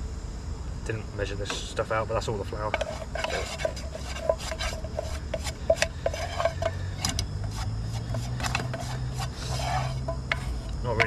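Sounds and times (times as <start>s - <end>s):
spatula scraping a frying pan: 2.6s - 11.0s.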